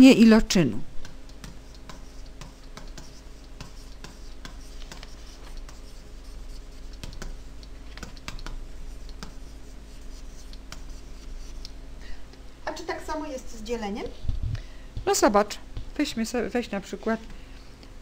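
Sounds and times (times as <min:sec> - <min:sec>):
faint steady hum: 0:00.0 - 0:18.0
stylus tapping on graphics tablet: 0:01.0 - 0:06.0, 0:06.7 - 0:09.6.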